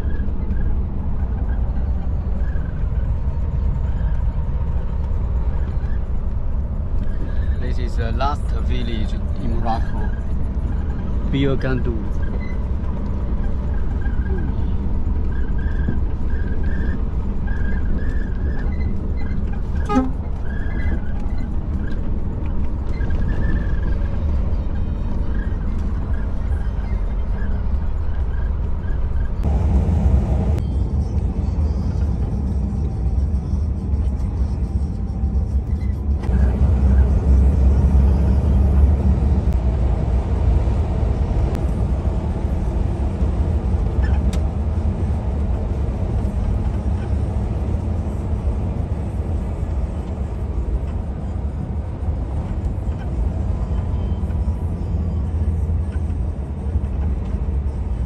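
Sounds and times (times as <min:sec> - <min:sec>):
truck engine and road rumble: 0:00.0 - 0:58.0.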